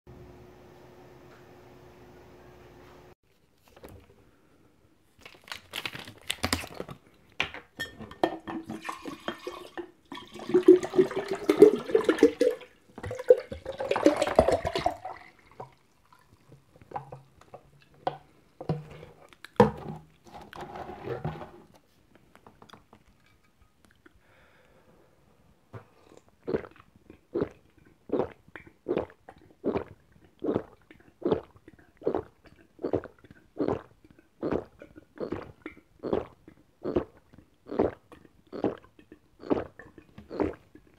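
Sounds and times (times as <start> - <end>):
plastic bottle clicking and crackling: 5.2 - 7.8
bottle and pitcher knocking: 7.5 - 15.8, 18.0 - 20.4
juice pouring into pitcher: 8.5 - 18.0.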